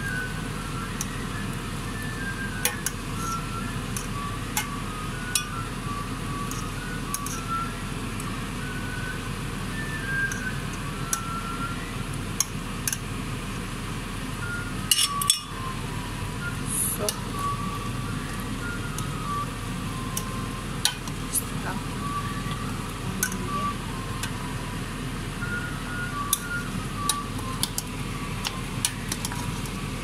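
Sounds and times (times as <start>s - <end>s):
steady low hum: 0.0s - 30.0s
simple high-note tune: 2.6s - 7.8s, 14.4s - 29.1s
metal spoon clinking on pot: 14.9s - 15.5s.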